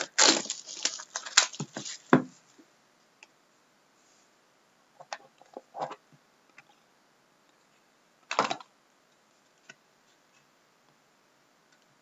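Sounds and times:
packaging rustling: 0:00.0 - 0:02.2.

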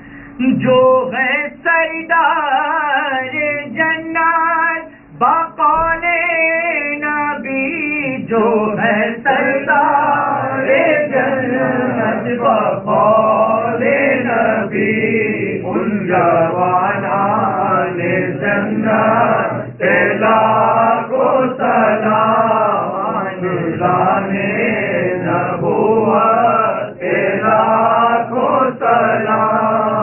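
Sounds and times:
man reciting into a microphone: 0:00.1 - 0:30.0
men chanting in unison: 0:08.0 - 0:30.0.

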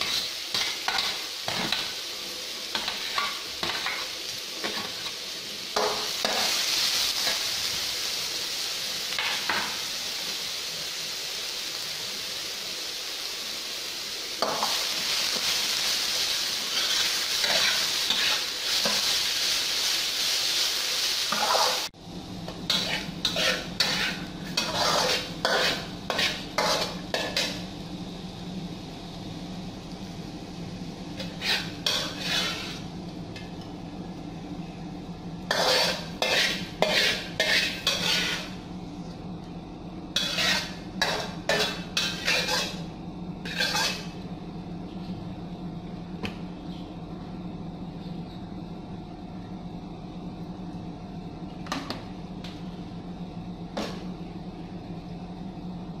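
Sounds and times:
utensil scraping a wok: 0:00.0 - 0:02.0, 0:02.7 - 0:07.8, 0:14.4 - 0:21.9, 0:22.6 - 0:27.7, 0:31.2 - 0:33.0, 0:35.5 - 0:38.7, 0:40.2 - 0:44.2.

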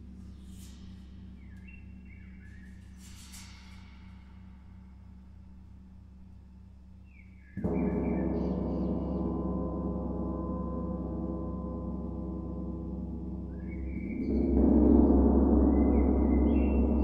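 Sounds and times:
deep low hum: 0:03.6 - 0:17.0
large gong ringing: 0:07.7 - 0:17.0.

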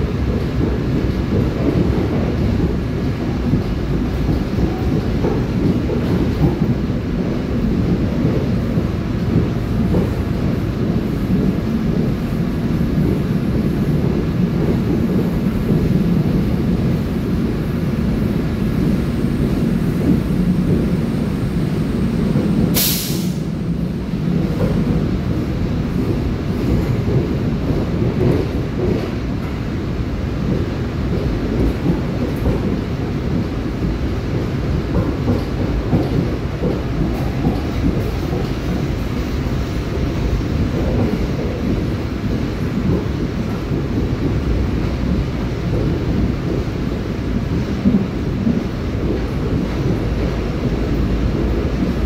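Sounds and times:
train wheels rumbling on rails: 0:00.0 - 0:52.0
short sharp hiss: 0:22.8 - 0:23.5.

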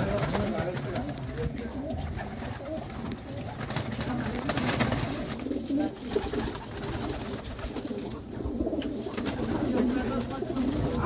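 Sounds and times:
pigeons cooing: 0:00.4 - 0:11.0.

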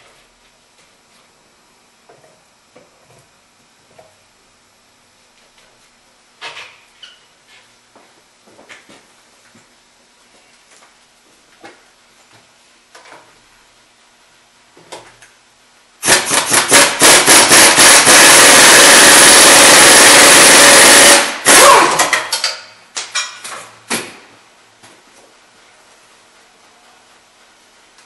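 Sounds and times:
pneumatic impact wrench hammering: 0:16.0 - 0:22.7.

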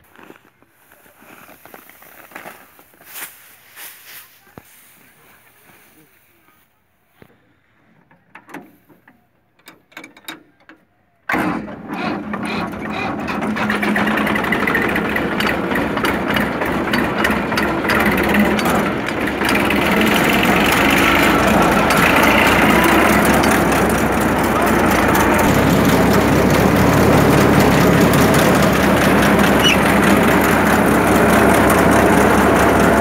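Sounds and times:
tractor and thresher running: 0:11.3 - 0:33.0.

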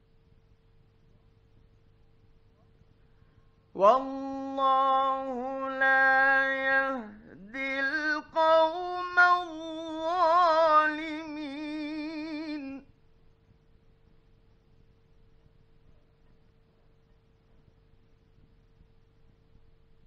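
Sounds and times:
faint recording hum: 0:00.0 - 0:20.0
man chanting melodically: 0:03.8 - 0:12.9.

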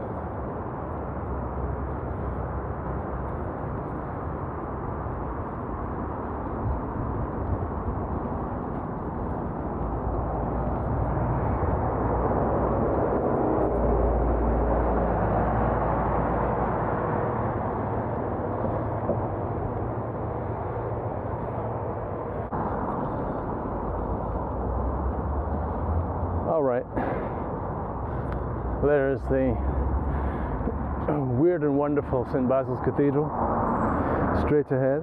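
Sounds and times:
wind noise: 0:00.0 - 0:26.4
street traffic: 0:00.0 - 0:35.0.

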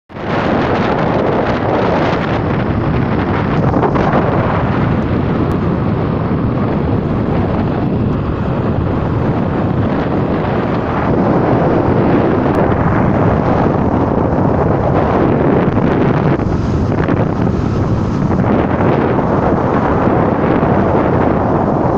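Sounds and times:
road noise: 0:00.1 - 0:21.9
wind roaring over microphone: 0:00.1 - 0:21.9
motorcycle running: 0:00.2 - 0:21.9.

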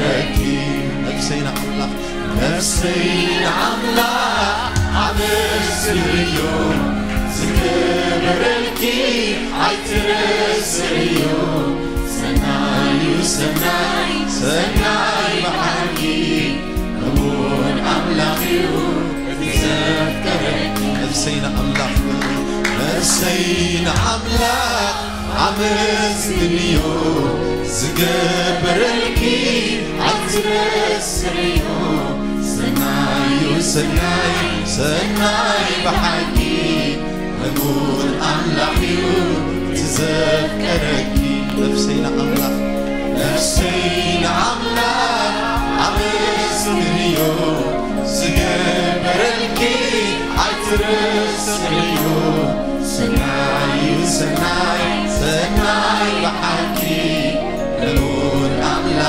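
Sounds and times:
mixed choir singing gospel: 0:00.0 - 0:59.0
backing beat with bass: 0:02.9 - 0:11.4, 0:21.6 - 0:27.4.

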